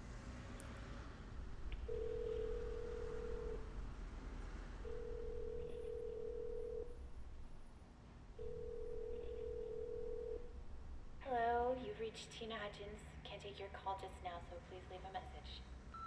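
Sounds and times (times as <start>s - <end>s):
low steady rumble: 0.0s - 13.4s
telephone ringback tone: 1.9s - 3.7s, 4.8s - 7.0s, 8.4s - 10.5s.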